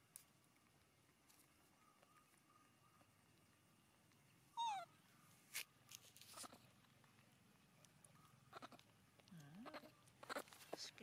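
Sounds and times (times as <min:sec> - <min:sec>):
baby monkey high call: 0:04.6 - 0:04.9.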